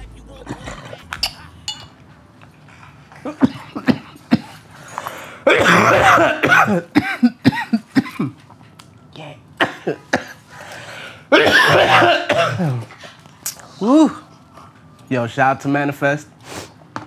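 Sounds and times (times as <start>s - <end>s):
man coughing hard: 3.2s - 8.4s, 9.6s - 10.4s, 11.3s - 13.0s.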